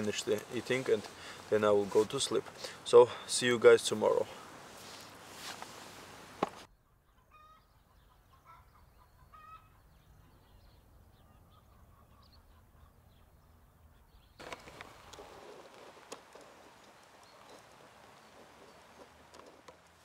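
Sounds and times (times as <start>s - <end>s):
rustling hiss: 0.0s - 6.7s, 14.4s - 20.0s
distant chickens clucking: 6.1s - 10.2s, 14.6s - 20.0s.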